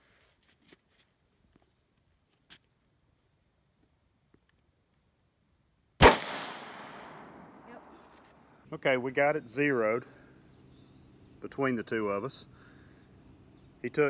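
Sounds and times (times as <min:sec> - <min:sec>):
rifle shot echoing: 0:06.0 - 0:08.0.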